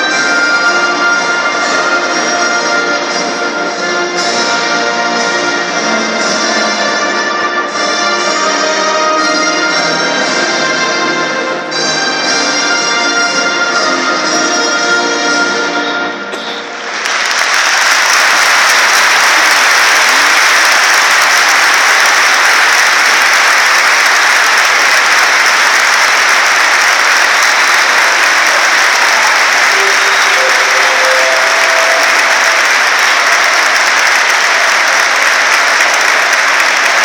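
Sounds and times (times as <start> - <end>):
crowd applauding: 16.6 - 37.0.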